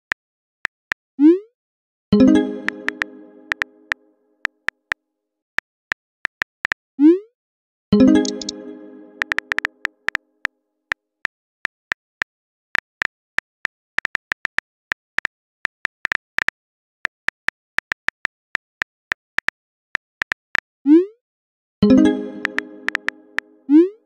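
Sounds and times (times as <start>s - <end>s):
phone keyboard tap clicks: 2.9s - 3.7s, 9.2s - 10.2s, 22.4s - 23.2s.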